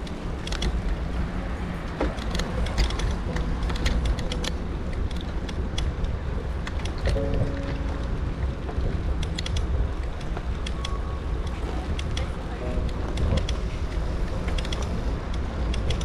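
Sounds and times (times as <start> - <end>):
bike clicks and rattles: 0.0 - 16.0.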